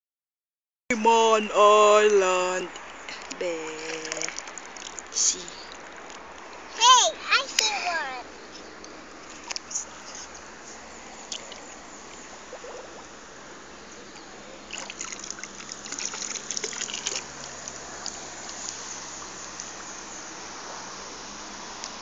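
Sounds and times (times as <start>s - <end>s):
steady hiss: 0.9s - 22.0s
hands splashing in water: 14.7s - 18.6s.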